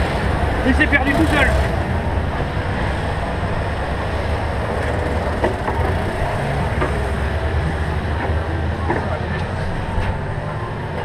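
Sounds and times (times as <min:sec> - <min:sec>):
kart engine idling: 0:00.0 - 0:08.7.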